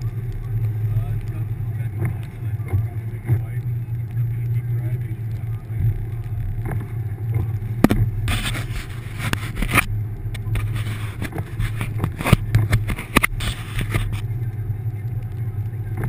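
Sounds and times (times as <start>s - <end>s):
car engine running: 0.0s - 16.0s
scraping rushing snow noise: 0.0s - 16.0s.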